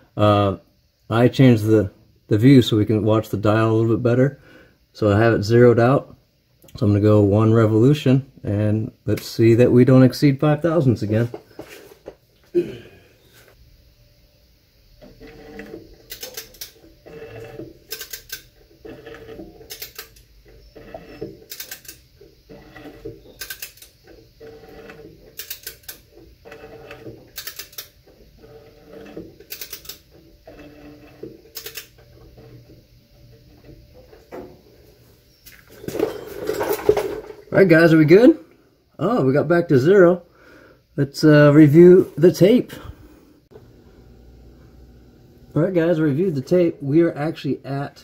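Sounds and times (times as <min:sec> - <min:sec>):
scraping and working noise: 0:14.9 - 0:38.4, 0:41.1 - 0:48.0
ratchet wrench clicking: 0:15.4 - 0:16.8, 0:17.4 - 0:30.1, 0:30.7 - 0:32.0.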